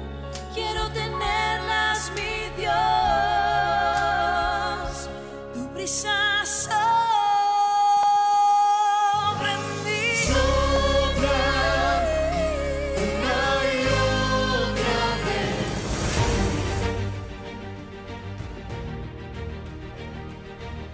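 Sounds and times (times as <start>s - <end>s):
person singing worship song: 0.5s - 16.8s.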